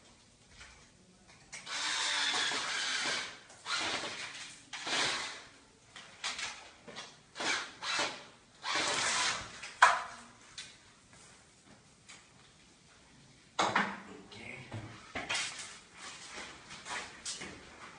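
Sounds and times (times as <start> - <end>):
power drill boring into wall: 1.6 - 5.5, 7.4 - 9.5.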